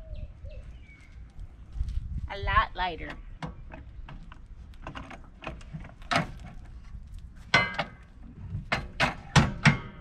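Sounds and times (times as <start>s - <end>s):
metal steps clanking: 7.4s - 10.0s.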